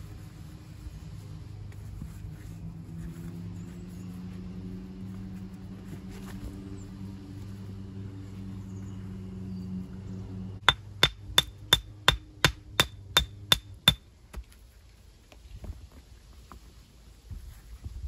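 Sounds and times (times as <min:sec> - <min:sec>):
hammer striking stone: 0:10.6 - 0:14.0.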